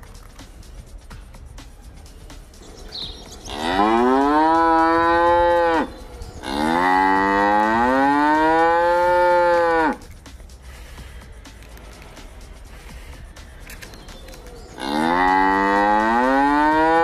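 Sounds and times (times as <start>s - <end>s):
cow mooing: 3.5s - 10.0s, 14.8s - 17.0s.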